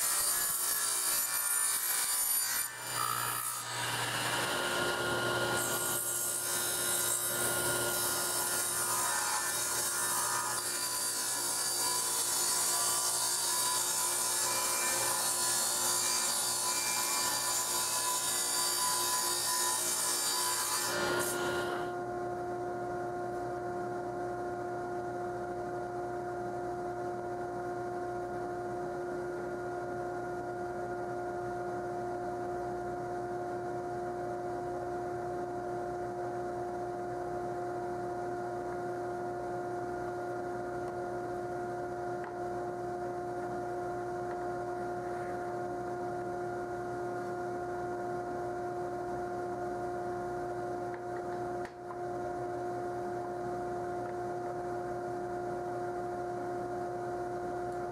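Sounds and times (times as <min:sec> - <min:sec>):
electrical mains hum: 0:21.0 - 0:57.9.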